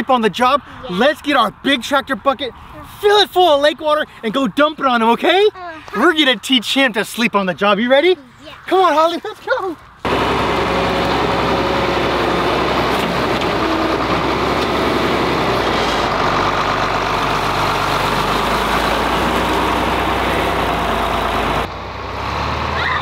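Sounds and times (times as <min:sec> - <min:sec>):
tractor engine running: 0:10.0 - 0:22.8.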